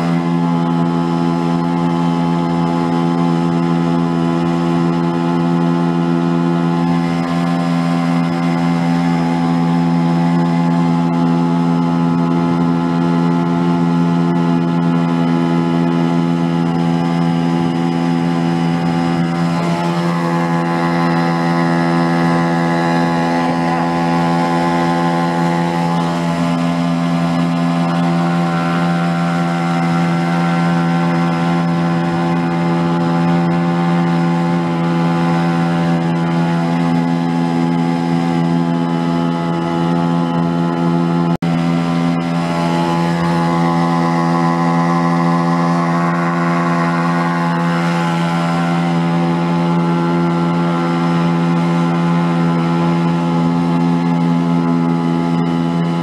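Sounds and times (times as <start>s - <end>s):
small boat motor running: 0.0s - 56.0s
water and wind noise: 0.0s - 56.0s.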